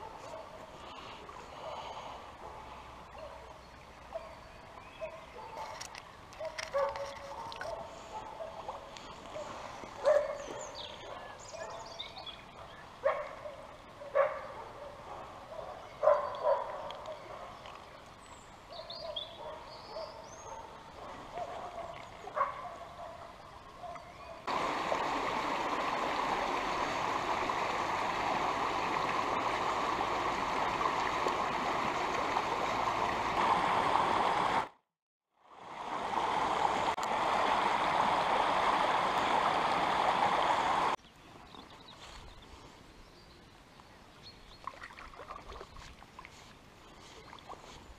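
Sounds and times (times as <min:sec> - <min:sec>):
river rushing: 0:24.5 - 0:34.8, 0:35.5 - 0:41.0.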